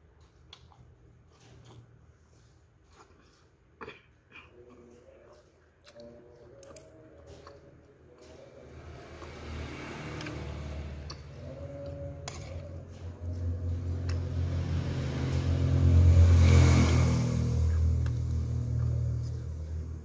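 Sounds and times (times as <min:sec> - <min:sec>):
low engine rumble: 0:06.3 - 0:20.0.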